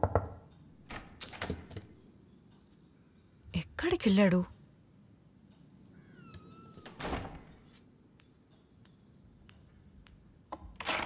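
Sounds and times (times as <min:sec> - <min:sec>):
door hinge squeaking: 0:05.9 - 0:07.6.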